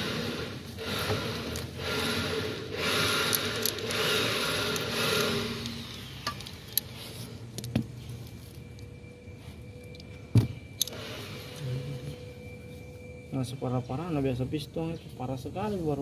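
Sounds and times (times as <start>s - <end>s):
faint steady hum: 0.0s - 16.0s
sharp metallic clicks: 2.7s - 6.9s
metal parts rubbing and scraping: 2.8s - 8.9s.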